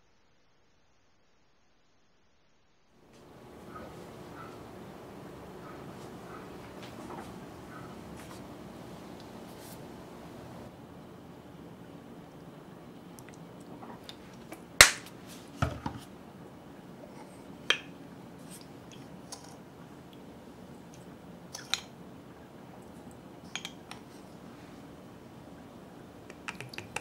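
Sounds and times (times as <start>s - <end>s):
faint steady hiss: 0.0s - 27.0s
bottles clicking and tapping: 26.3s - 27.0s.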